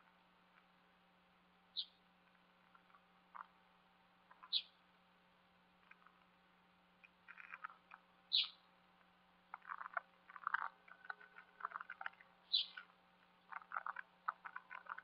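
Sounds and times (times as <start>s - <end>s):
steady low hum: 0.0s - 15.0s
rapid croak-like pulsing calls: 2.7s - 3.6s, 4.3s - 4.8s, 7.2s - 8.7s, 9.5s - 15.0s.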